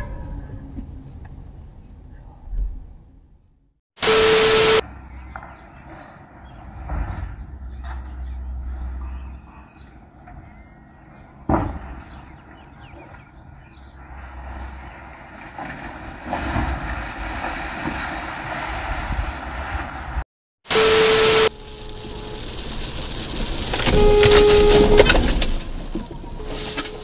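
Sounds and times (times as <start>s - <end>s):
low rumble: 21.4s - 27.0s.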